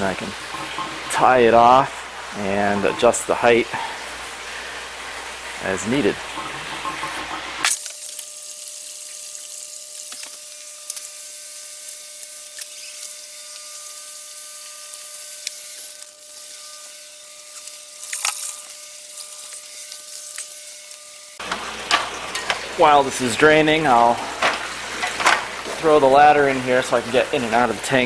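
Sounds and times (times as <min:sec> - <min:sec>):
hiss of moving water: 0:00.0 - 0:07.6.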